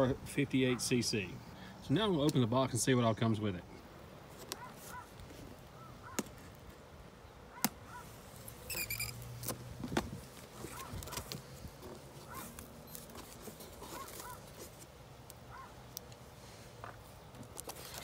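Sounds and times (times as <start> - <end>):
birds chirping faintly: 0.3 - 9.4, 10.4 - 18.0
cardboard rustling: 8.2 - 14.9, 17.4 - 18.0
packing tape being slit: 17.4 - 18.0.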